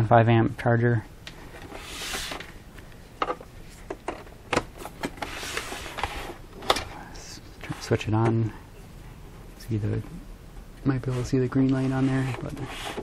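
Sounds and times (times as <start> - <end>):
hands rubbing and scraping plastic: 11.0 - 13.0.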